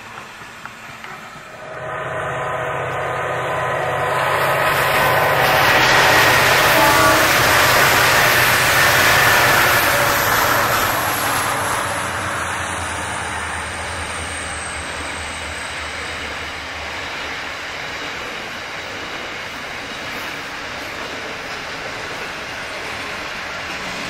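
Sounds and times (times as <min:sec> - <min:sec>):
diesel locomotive engines: 0:00.0 - 0:24.0.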